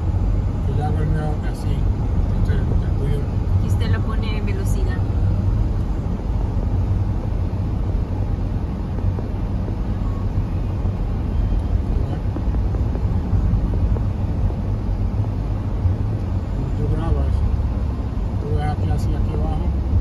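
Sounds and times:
car driving engine rumble: 0.0s - 20.0s
tyre noise on road: 4.9s - 16.6s.

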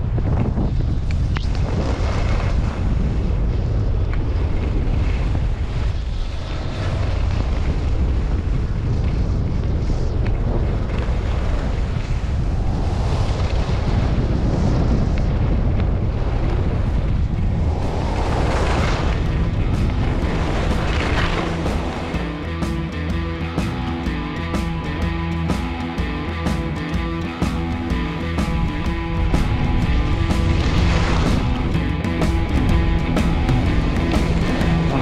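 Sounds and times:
wind buffeting microphone: 0.0s - 35.0s
skis sliding on snow: 4.3s - 22.1s.

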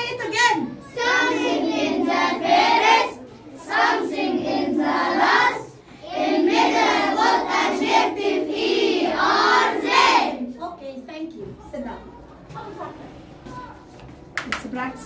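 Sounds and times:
children singing in unison: 0.9s - 10.4s.

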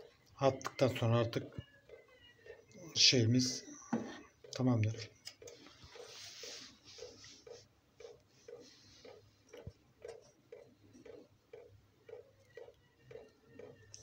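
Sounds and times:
soft regular pulse: 5.2s - 14.0s.

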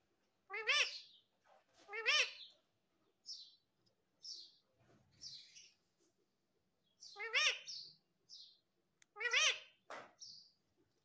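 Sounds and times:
parakeet calling: 0.5s - 1.2s, 1.9s - 2.6s, 7.0s - 10.4s.

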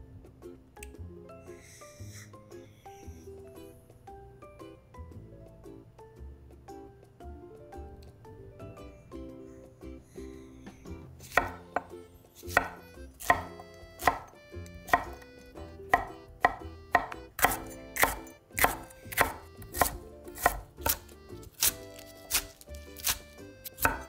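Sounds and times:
knife chopping on wooden board: 11.2s - 15.3s, 15.9s - 24.0s.

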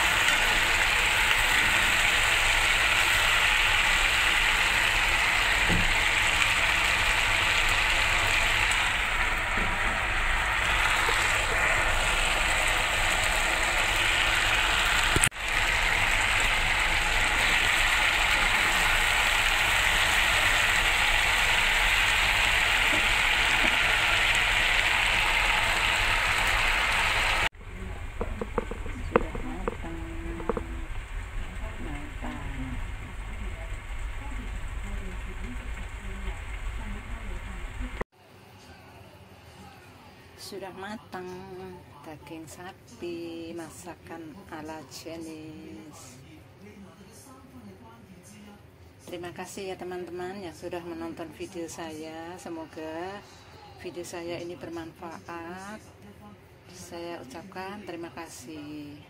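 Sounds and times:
food sizzling in a frying pan: 0.0s - 38.0s.

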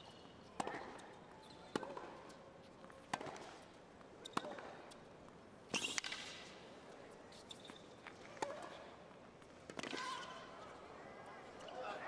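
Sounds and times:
tennis ball bouncing on court: 0.1s - 6.5s, 7.3s - 8.8s
tennis ball struck by rackets: 0.6s - 2.3s, 3.0s - 3.6s, 4.2s - 5.0s.

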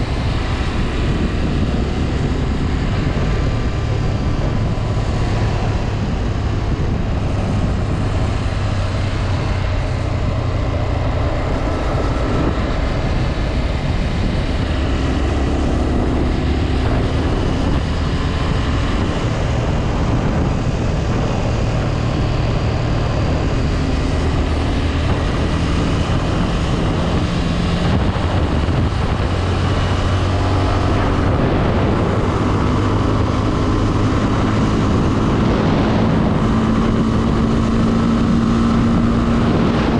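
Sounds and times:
motorcycle engine running: 0.0s - 39.9s
wind noise: 0.0s - 39.9s.

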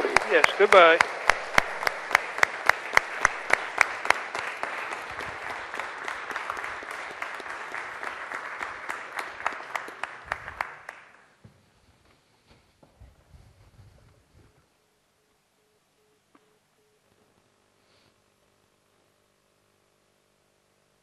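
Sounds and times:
audience applauding: 0.0s - 11.4s
evenly paced claps: 0.0s - 11.4s.

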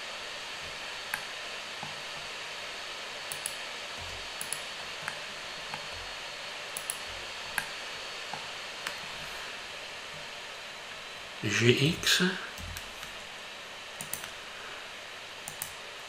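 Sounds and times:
steady background hiss: 0.0s - 16.0s
mouse and keyboard clicks: 3.3s - 3.6s, 4.4s - 5.9s, 6.8s - 7.7s, 14.0s - 14.4s, 15.5s - 15.8s.

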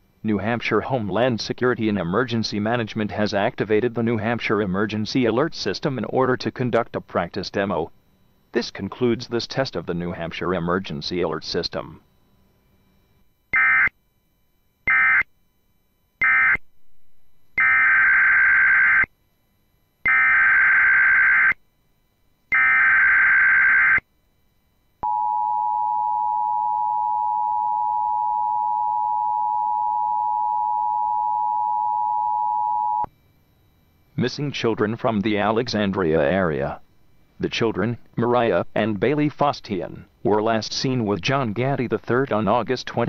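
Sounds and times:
two-tone attention signal: 25.0s - 33.1s.

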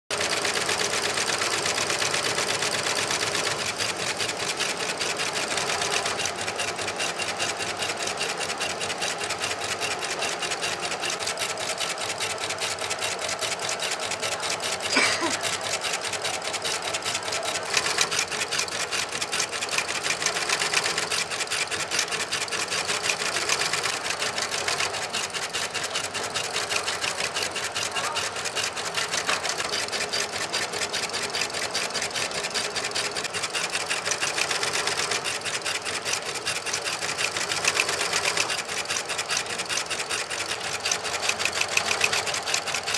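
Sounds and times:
stitching machine needle rattle: 0.1s - 42.9s.

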